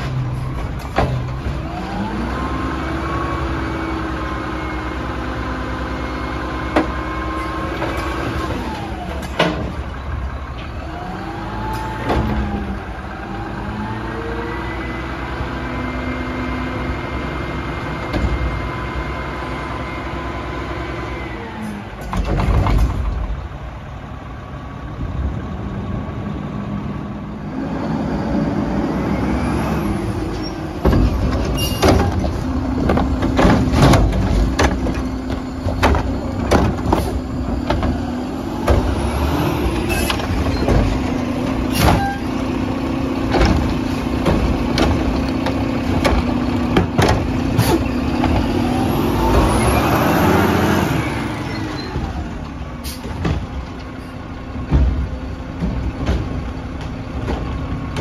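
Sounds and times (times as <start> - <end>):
bangs and clanks of refuse: 0.0 - 2.6, 6.6 - 12.8, 21.6 - 23.7, 29.7 - 58.0
garbage truck engine drone: 0.0 - 58.0.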